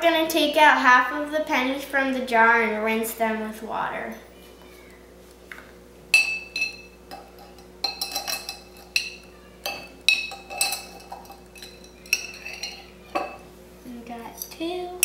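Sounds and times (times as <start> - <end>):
spoon clinking against glass jar: 6.2 - 13.4.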